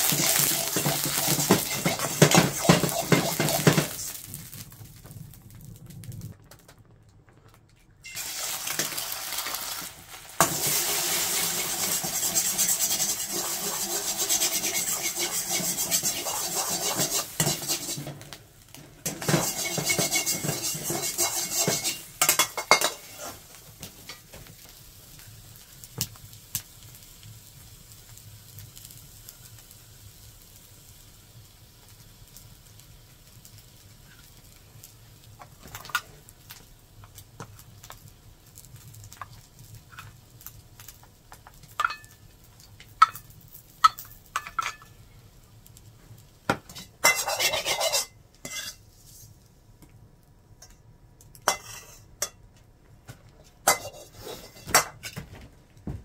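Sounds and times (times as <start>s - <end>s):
ladle scraping a wok: 0.0s - 4.3s, 10.4s - 18.3s, 19.0s - 23.5s, 46.7s - 49.4s, 51.5s - 52.3s, 53.6s - 55.2s.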